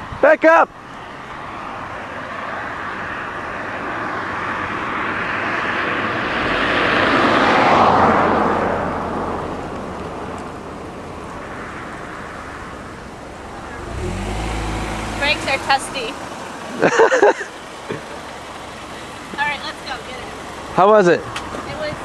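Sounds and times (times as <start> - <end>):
low engine hum: 6.0 - 22.0
tyres hissing on wet road: 12.4 - 22.0.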